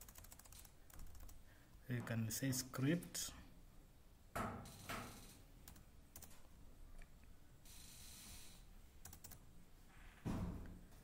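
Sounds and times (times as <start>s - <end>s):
computer keyboard keystrokes: 0.0s - 1.4s, 5.6s - 6.3s, 9.0s - 9.4s.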